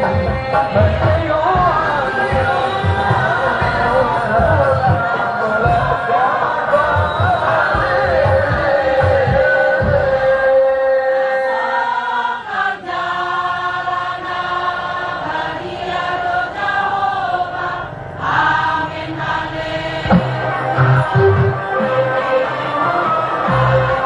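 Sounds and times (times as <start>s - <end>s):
person singing long held notes: 20.0s - 24.0s.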